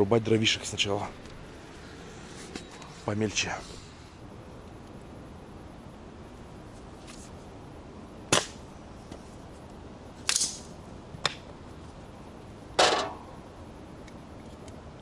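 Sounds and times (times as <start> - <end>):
axe chopping firewood: 8.3 - 8.6.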